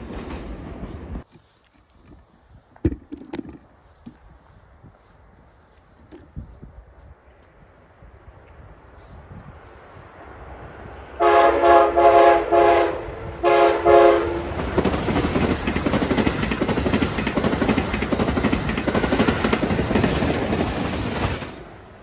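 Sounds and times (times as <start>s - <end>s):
train passing at speed: 0.0s - 1.3s, 7.2s - 22.0s
train horn blasts: 11.1s - 14.6s.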